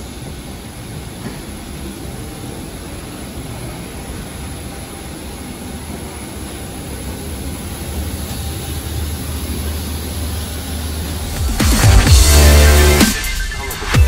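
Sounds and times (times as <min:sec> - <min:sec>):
airliner systems humming: 0:00.0 - 0:14.0.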